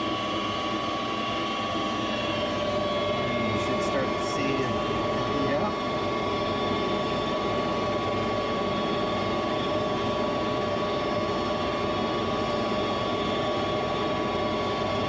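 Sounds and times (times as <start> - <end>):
furnace draft inducer fan running: 0.0 - 15.0.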